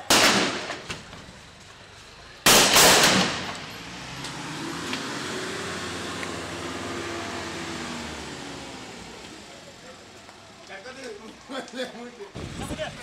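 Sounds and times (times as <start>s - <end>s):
gunshots ringing off street: 0.0s - 1.1s, 2.4s - 3.7s
vehicle engine running: 0.8s - 13.0s.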